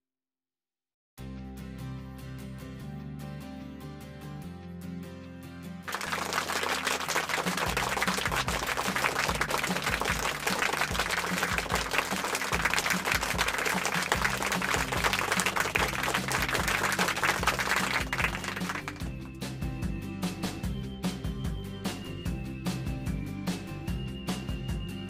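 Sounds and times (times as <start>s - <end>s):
music with low beat: 6.3s - 25.0s.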